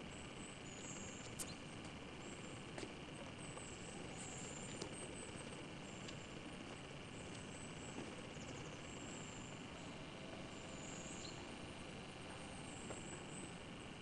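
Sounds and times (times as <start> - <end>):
camcorder tape hiss: 0.0 - 14.0.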